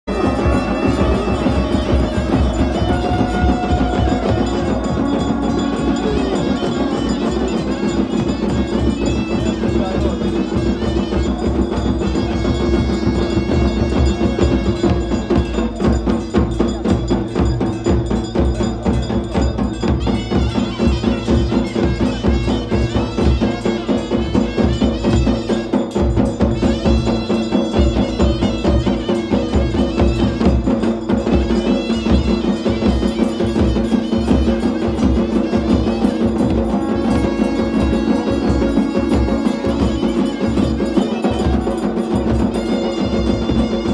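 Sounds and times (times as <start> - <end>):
steady drumming: 0.0 - 43.9
wind instruments drone: 0.1 - 15.9, 31.3 - 43.9
ringing percussion: 0.1 - 43.9.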